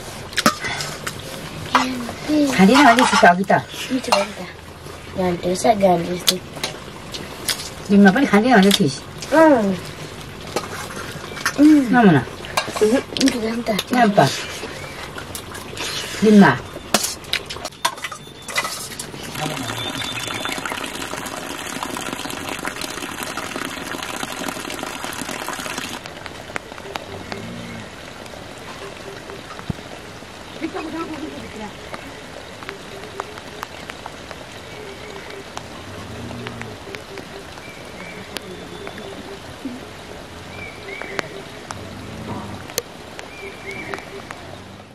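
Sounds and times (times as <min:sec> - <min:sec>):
rushing water hiss: 0:00.0 - 0:44.9
sharp drip ticks: 0:31.9 - 0:39.2.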